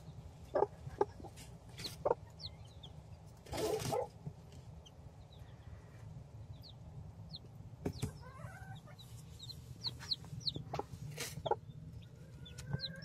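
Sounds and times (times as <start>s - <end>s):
chicks peeping: 0.0s - 13.0s
steady low hum: 0.0s - 13.0s.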